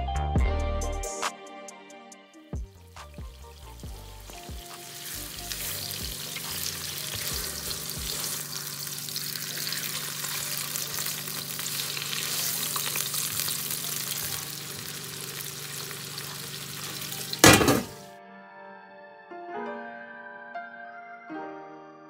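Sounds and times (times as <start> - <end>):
meat sizzling in a pan: 2.6 - 18.0
spatula scraping a pan: 5.0 - 8.6, 11.7 - 13.4.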